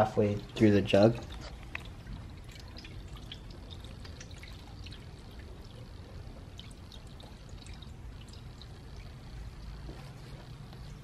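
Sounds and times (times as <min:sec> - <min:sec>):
light splashing: 0:00.0 - 0:11.0
liquid pouring into radiator: 0:00.0 - 0:11.0.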